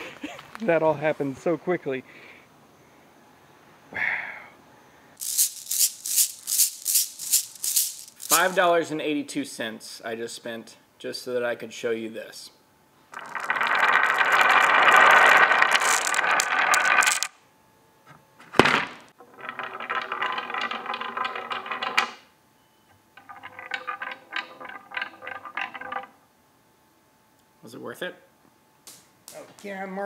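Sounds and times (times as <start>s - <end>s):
marbles clattering down wooden grooves: 5.2s - 8.6s, 13.1s - 17.3s, 19.2s - 22.2s, 23.2s - 26.2s.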